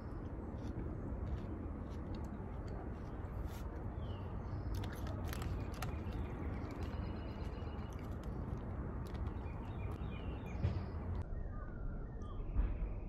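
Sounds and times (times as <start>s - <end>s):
faint bird chirps: 9.4s - 13.0s.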